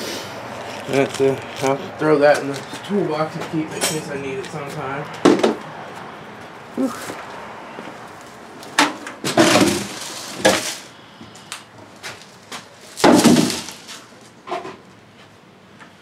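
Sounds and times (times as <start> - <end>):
hard objects knocking and clattering: 5.2 - 5.6, 8.8 - 10.7.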